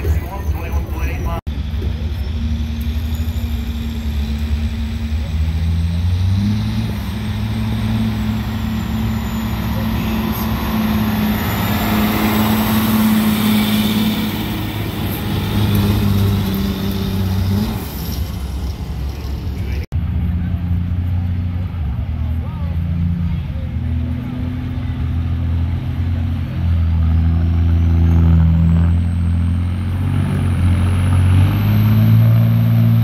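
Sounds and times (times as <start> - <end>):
diesel truck engine drone: 0.0 - 33.0.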